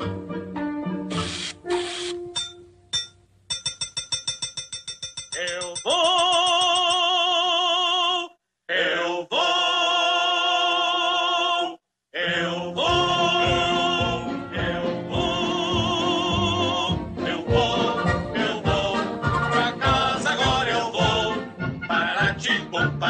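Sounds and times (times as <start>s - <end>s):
cartoon voices singing with vibrato: 5.5s - 23.0s
orchestral march music: 12.5s - 23.0s.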